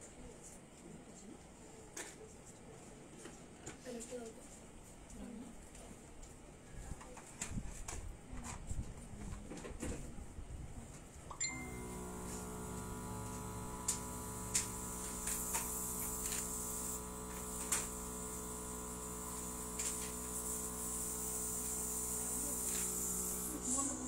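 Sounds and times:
air compressor humming: 11.4 - 24.0
airbrush air hiss: 11.8 - 24.0.

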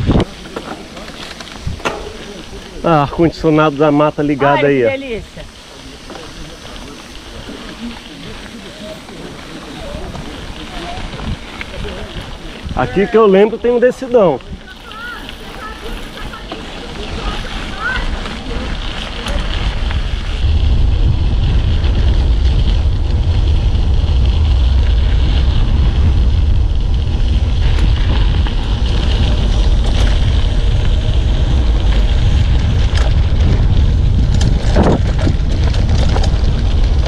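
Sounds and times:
bike knocks: 0.0 - 2.8
wind buffeting microphone: 0.0 - 13.8, 14.4 - 37.0
tyres rumbling on rough road: 0.0 - 37.0.

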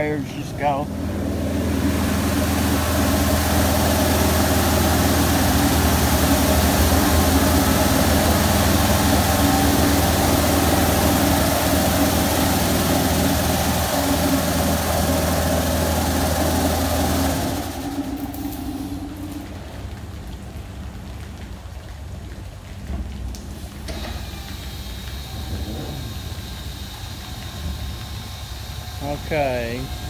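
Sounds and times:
low machine hum: 0.0 - 30.0.

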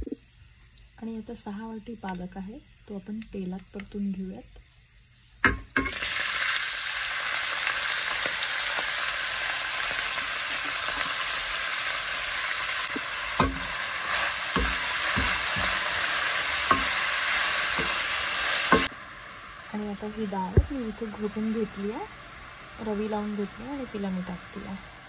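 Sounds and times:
spinach sizzling in oil: 0.0 - 25.0
spatula scraping a pot: 12.9 - 18.9.

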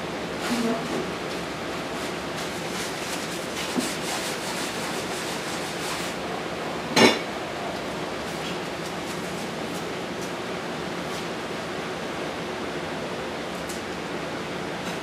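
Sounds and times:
kitchen rushing background noise: 0.0 - 12.0
kitchenware clank: 7.0 - 7.3.

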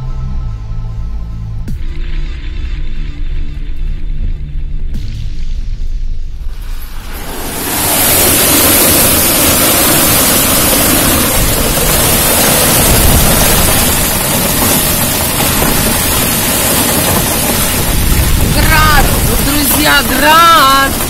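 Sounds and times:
hail and heavy rain falling: 6.6 - 21.0.

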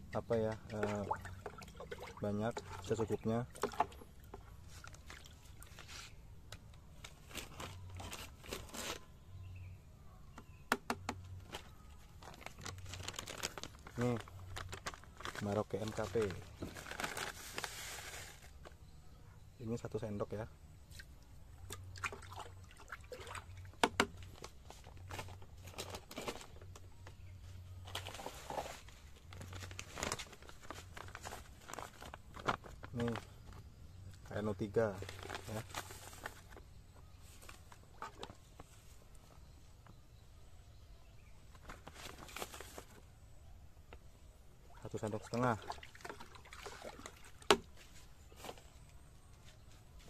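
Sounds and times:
water splashing in a bucket: 0.2 - 5.7, 21.7 - 23.8, 44.8 - 47.8
liquid sloshing: 0.5 - 5.7, 45.5 - 47.5.

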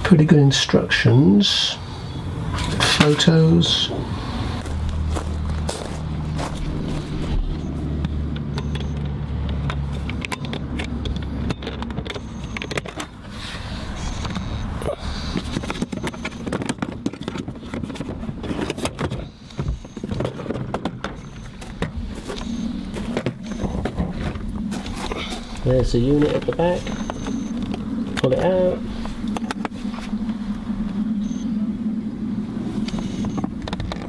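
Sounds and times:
low steady hum: 0.0 - 34.0
footsteps on gravel: 4.6 - 7.6.

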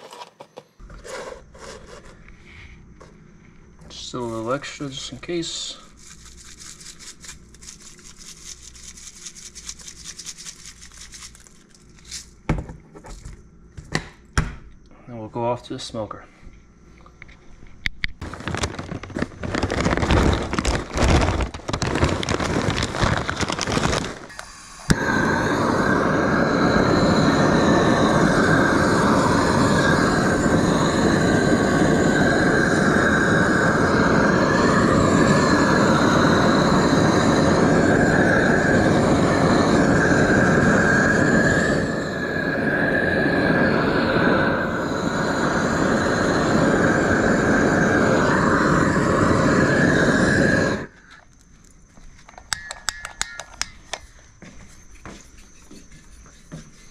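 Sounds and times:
gas torch flame rushing: 18.2 - 51.0.

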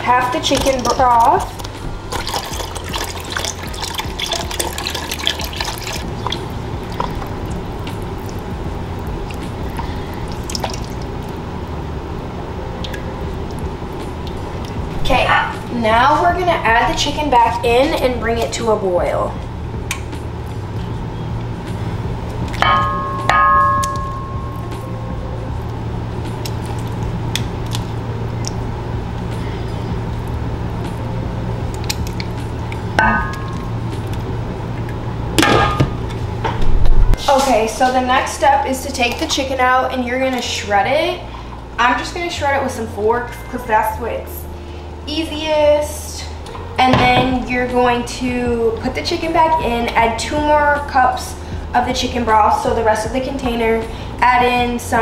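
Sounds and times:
steady low hum: 0.0 - 55.0
broth pouring and splashing: 0.5 - 11.4.

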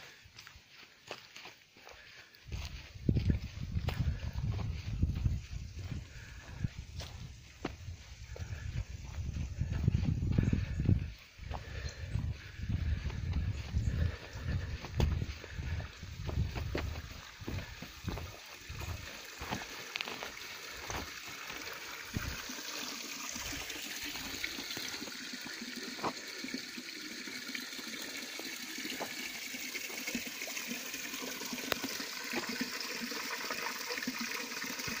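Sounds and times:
footsteps on dirt path: 0.0 - 22.7, 23.3 - 26.2
water splashing into stone trough: 16.2 - 35.0.

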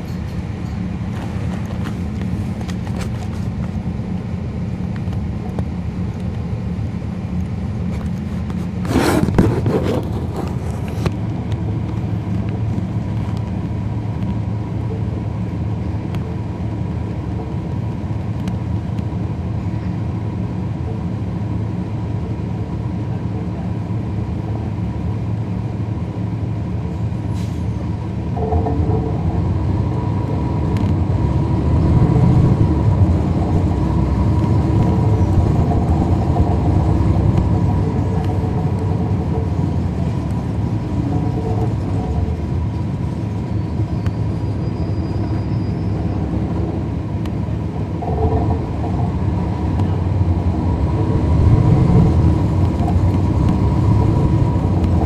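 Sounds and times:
bus diesel engine running: 0.0 - 55.0
air conditioning hum: 24.7 - 43.7, 46.6 - 55.0.

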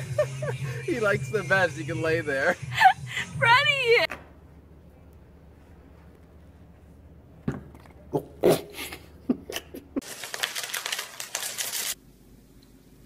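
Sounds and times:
cereal pouring into plastic bowl: 10.0 - 12.0.

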